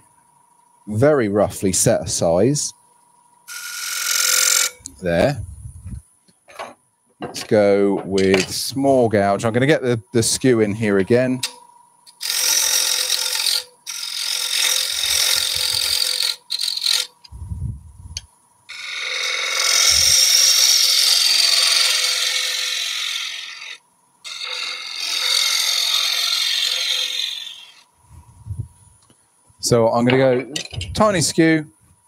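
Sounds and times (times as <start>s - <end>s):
lathe tool scraping wood: 12.2s - 17.2s, 18.7s - 27.8s.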